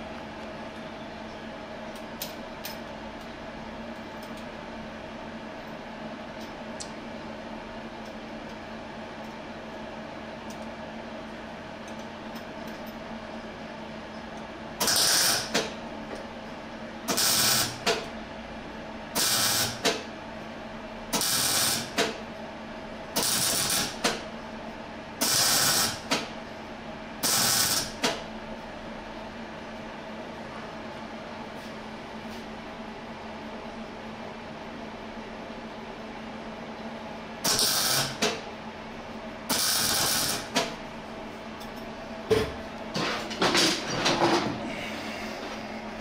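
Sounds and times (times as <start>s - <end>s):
steady low hum: 0.0s - 46.0s
welding arc crackling: 14.8s - 15.6s, 17.1s - 17.9s, 19.2s - 19.9s, 21.2s - 22.0s, 23.2s - 24.1s, 25.2s - 26.1s, 27.2s - 28.0s, 37.5s - 38.2s, 39.5s - 40.6s.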